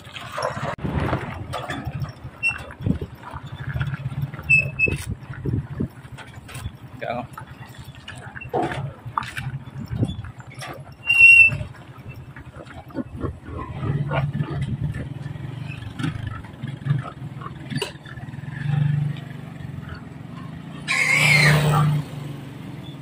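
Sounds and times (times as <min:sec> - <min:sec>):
small motorcycle engine running: 0:01.2 - 0:23.0
pigs grunting: 0:07.2 - 0:19.0
pig squealing: 0:20.8 - 0:22.0.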